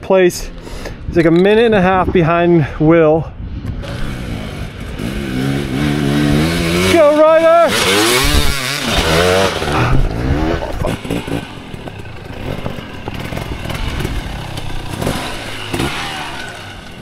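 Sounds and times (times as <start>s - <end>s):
dirt bike engine revving: 3.7s - 17.0s.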